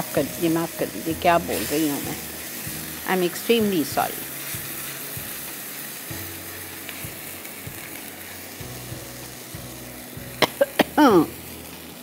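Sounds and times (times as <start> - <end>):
sauce sizzling and bubbling: 0.0 - 12.0
person coughing: 10.4 - 11.3.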